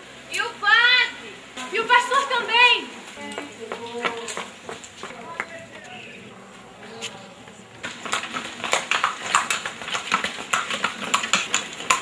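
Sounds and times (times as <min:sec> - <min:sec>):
horse hooves clattering: 0:03.3 - 0:12.0
cart rattling: 0:07.7 - 0:12.0.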